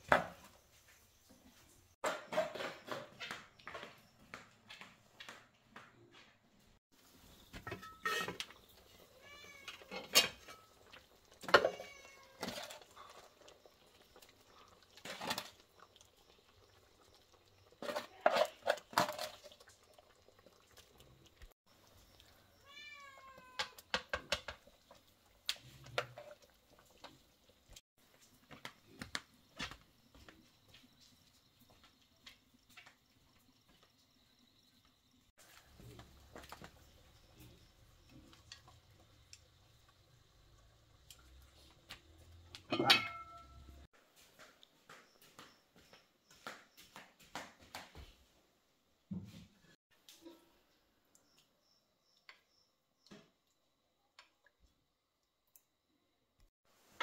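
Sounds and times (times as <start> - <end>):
cat meowing: 9.1 - 10.0, 11.6 - 12.4, 22.6 - 23.8.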